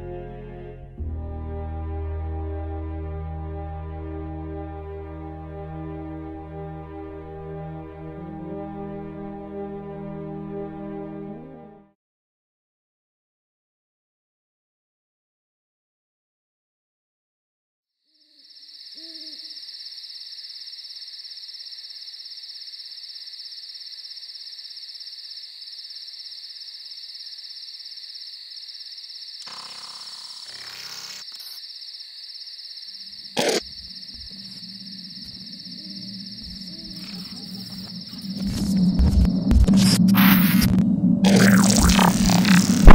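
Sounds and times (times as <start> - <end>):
crickets trilling: 18.1 - 40.5, 41.3 - 42.9
owl hooting: 18.9 - 19.7, 33.1 - 38.9
low hum: 33.8 - 42.9.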